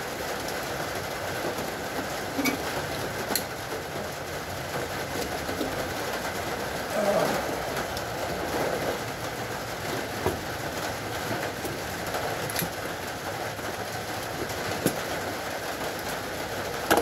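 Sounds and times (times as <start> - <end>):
steady rushing noise: 4.3 - 12.0.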